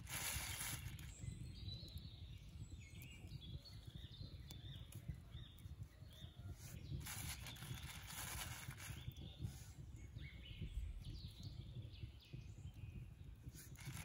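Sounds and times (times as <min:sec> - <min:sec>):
plastic bag rustling: 0:00.0 - 0:01.1, 0:07.0 - 0:09.0, 0:13.8 - 0:14.0
soft handling of meat: 0:06.4 - 0:09.7.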